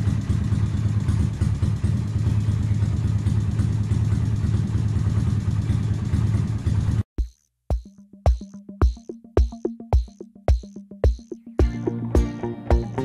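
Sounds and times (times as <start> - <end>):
motorcycle engine idling: 0.0 - 7.3
drum machine beat: 7.2 - 13.0.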